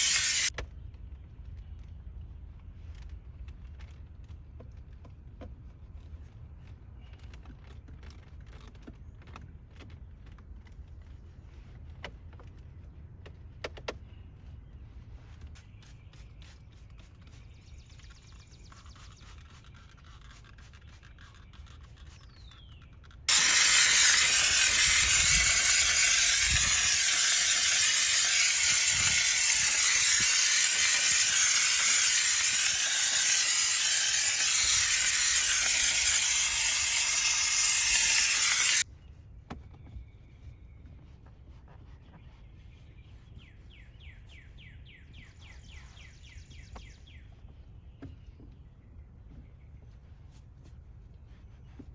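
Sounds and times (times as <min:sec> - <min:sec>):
steam cleaner hissing: 0:00.0 - 0:00.5, 0:23.3 - 0:38.8.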